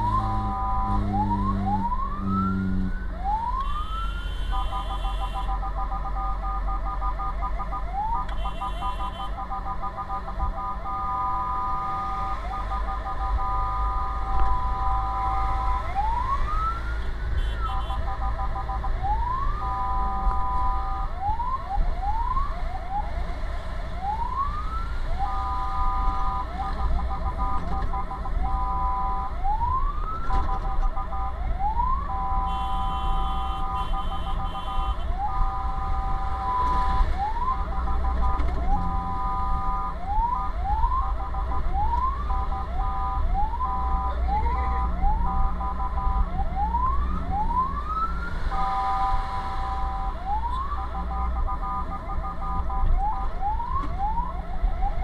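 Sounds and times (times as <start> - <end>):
electronic siren whooping and blaring: 0.0 - 5.6, 6.9 - 23.2, 24.0 - 30.4, 31.2 - 38.1, 38.7 - 55.0
truck engine rumble and road noise: 0.0 - 55.0.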